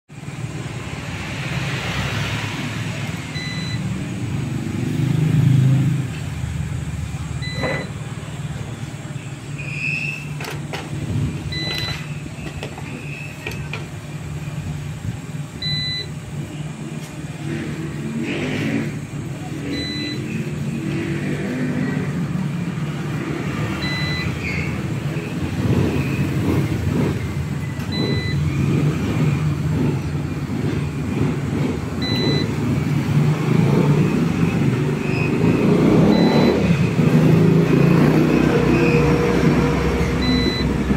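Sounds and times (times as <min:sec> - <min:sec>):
two-pitched beep: 0:03.3 - 0:03.9, 0:07.4 - 0:08.0, 0:11.5 - 0:12.1, 0:15.6 - 0:16.1, 0:19.6 - 0:20.4, 0:23.8 - 0:24.5, 0:27.7 - 0:28.5, 0:32.0 - 0:32.5, 0:35.0 - 0:36.7, 0:40.2 - 0:40.8.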